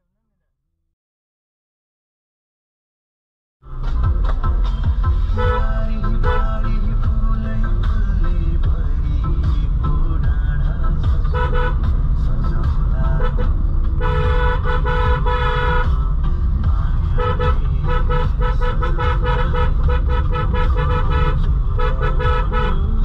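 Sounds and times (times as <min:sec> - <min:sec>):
engine and road rumble: 0:03.6 - 0:23.0
car horn honking: 0:05.4 - 0:06.8, 0:11.2 - 0:12.2, 0:13.0 - 0:16.1, 0:17.0 - 0:23.0.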